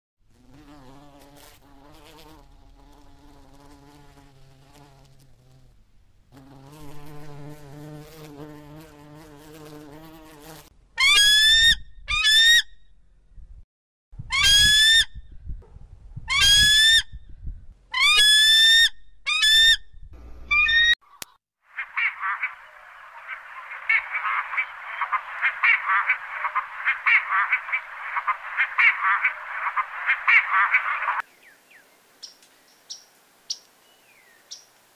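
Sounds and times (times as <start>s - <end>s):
bee buzzing: 0.3s - 10.7s.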